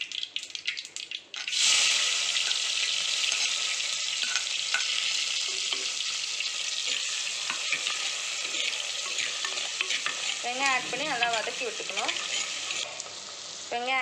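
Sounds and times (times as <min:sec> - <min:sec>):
onions sizzling in hot oil: 0:00.0 - 0:14.0
ladle stirring in a pot: 0:04.2 - 0:13.1.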